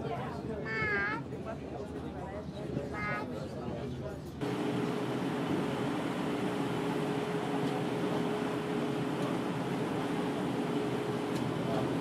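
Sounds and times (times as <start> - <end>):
boat engine humming: 4.4 - 12.0.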